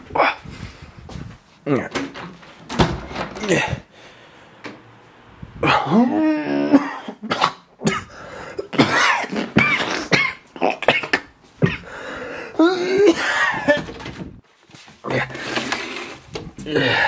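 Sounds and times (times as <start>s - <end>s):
man's strained vocal sounds: 3.4s - 3.9s, 5.6s - 13.6s, 15.0s - 15.8s, 16.6s - 17.0s
man coughing hard: 5.6s - 11.9s, 12.6s - 13.9s.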